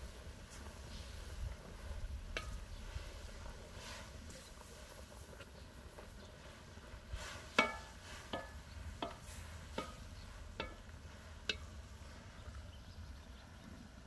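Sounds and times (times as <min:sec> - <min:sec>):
wooden spatula stirring in pot: 0:00.0 - 0:12.7
spatula knocking metal pot: 0:07.5 - 0:11.7.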